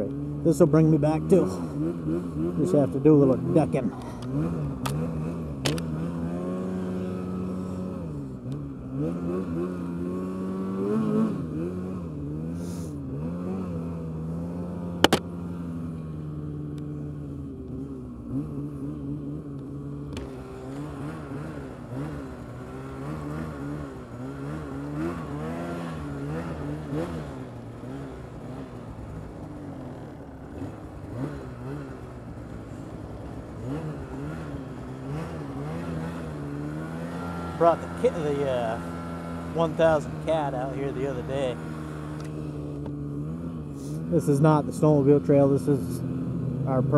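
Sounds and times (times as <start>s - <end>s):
snowmobile engine revving: 0.0s - 46.9s.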